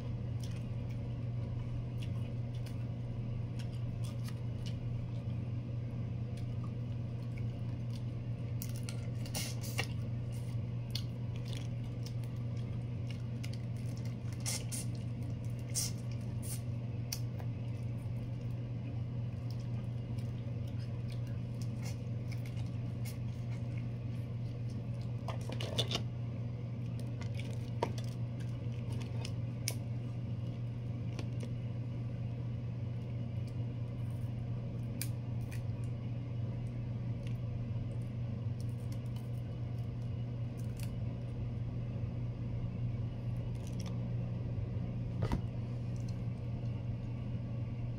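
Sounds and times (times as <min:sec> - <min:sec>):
steady low hum: 0:00.0 - 0:47.9
chewing: 0:03.5 - 0:05.4, 0:06.3 - 0:18.5, 0:19.3 - 0:26.0.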